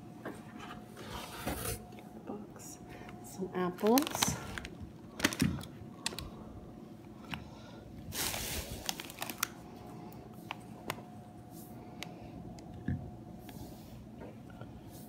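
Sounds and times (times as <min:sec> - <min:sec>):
plastic packaging crinkling: 0:03.7 - 0:06.4, 0:08.1 - 0:09.6.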